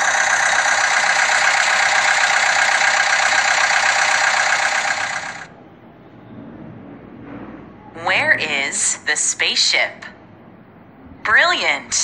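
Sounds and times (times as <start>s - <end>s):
excavator engine running: 0.0s - 5.5s.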